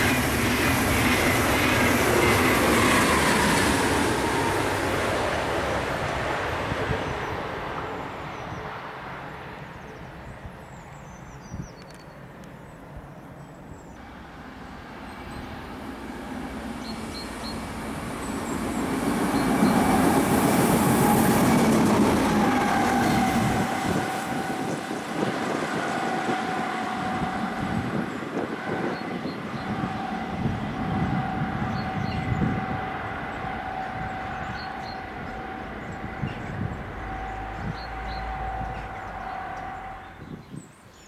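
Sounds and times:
diesel locomotive passing: 0:00.0 - 0:11.4, 0:12.2 - 0:41.0
high whine: 0:21.6 - 0:40.5.

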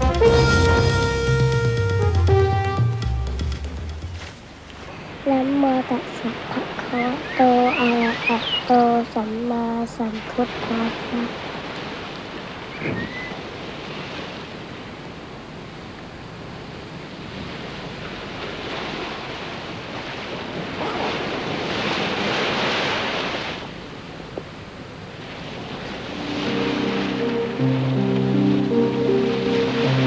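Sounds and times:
soft music with held notes: 0:00.0 - 0:04.4, 0:26.0 - 0:30.0
rushing ambient noise: 0:25.4 - 0:30.0.

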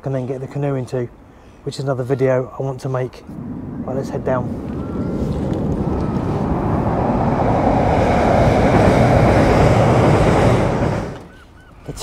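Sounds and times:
train rumbling over bridge: 0:03.2 - 0:11.4.

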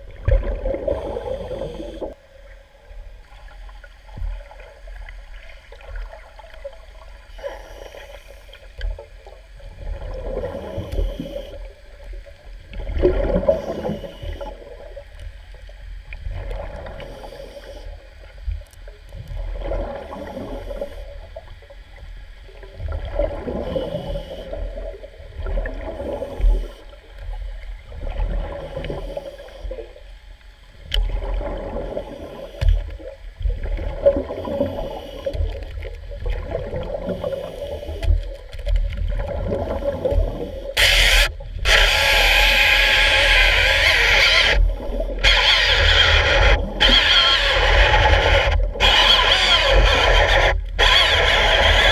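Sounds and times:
underwater chainsaw grinding: 0:13.0 - 0:14.6, 0:39.6 - 0:51.9.

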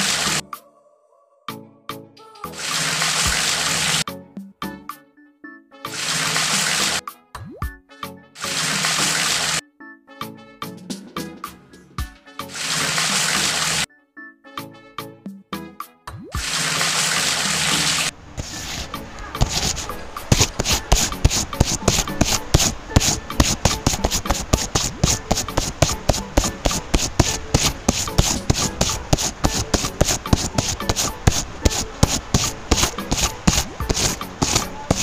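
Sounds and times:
wet cement pouring from bucket: 0:06.0 - 0:07.0, 0:08.4 - 0:09.6, 0:12.6 - 0:13.9, 0:16.4 - 0:35.0
trowel scraping wet cement: 0:16.5 - 0:35.0.

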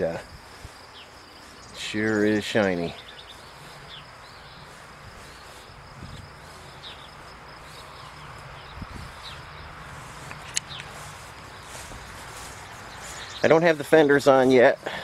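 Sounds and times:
steady outdoor hiss: 0:00.0 - 0:15.0
high bird chirps: 0:00.9 - 0:05.7, 0:06.5 - 0:13.6.

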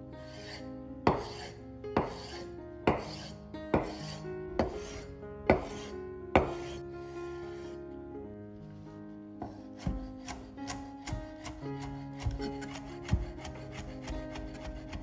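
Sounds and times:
soft background music: 0:00.0 - 0:15.0
knife chopping on cutting board: 0:01.1 - 0:02.3, 0:02.9 - 0:06.8, 0:09.4 - 0:15.0.

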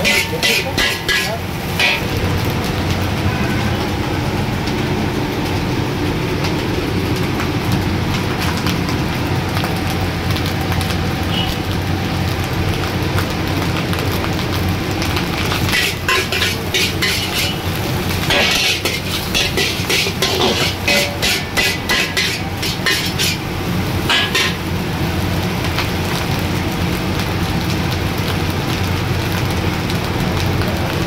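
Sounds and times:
spatula scraping iron wok: 0:00.0 - 0:02.2, 0:15.4 - 0:24.8.

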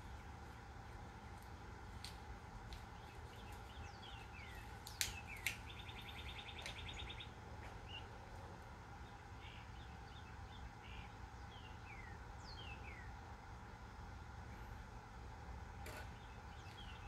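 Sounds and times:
faint low hum: 0:00.0 - 0:17.0
birds chirping and trilling: 0:02.8 - 0:13.2, 0:15.9 - 0:17.0.

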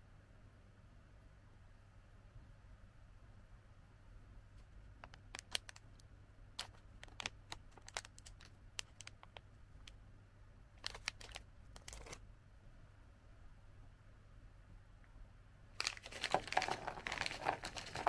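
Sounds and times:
plastic pouch crinkling: 0:05.2 - 0:06.0, 0:06.6 - 0:09.4, 0:10.8 - 0:12.2, 0:15.8 - 0:18.0.

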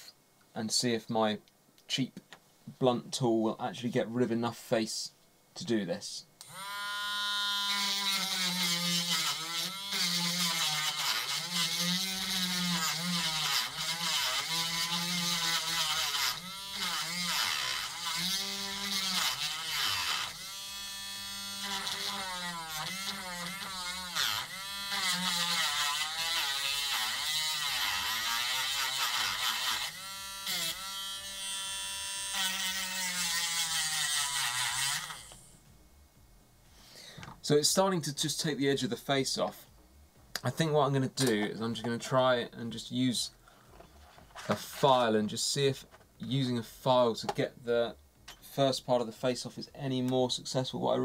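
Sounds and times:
rotary tool grinding: 0:07.4 - 0:35.4.

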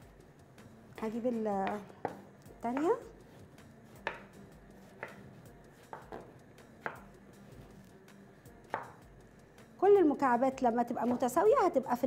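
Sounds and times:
knife knocking on cutting board: 0:01.6 - 0:03.0, 0:04.0 - 0:04.4, 0:05.0 - 0:05.2, 0:05.9 - 0:07.1, 0:08.7 - 0:09.0.

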